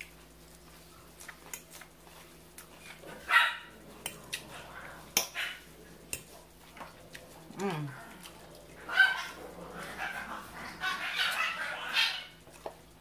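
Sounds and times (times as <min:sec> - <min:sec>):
dog barking: 0:03.2 - 0:03.8, 0:08.9 - 0:12.4.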